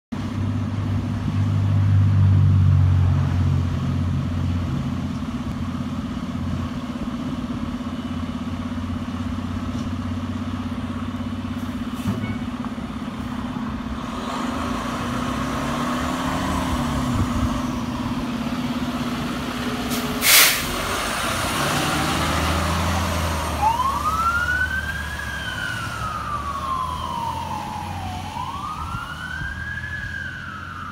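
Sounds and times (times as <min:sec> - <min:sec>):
fire engine diesel engine running: 0:03.6 - 0:30.9
siren wailing: 0:23.0 - 0:30.9.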